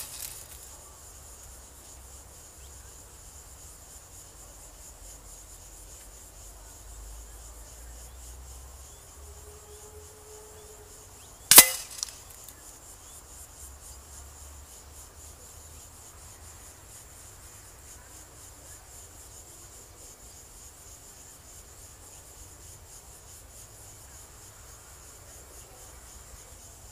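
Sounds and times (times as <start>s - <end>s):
insects chirping: 0.0s - 26.9s
air rifle shot: 11.5s - 12.1s
target knock: 11.5s - 12.2s.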